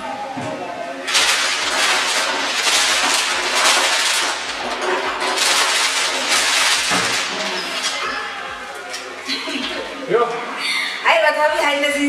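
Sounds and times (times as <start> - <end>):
packing paper rustling: 1.0 - 9.8.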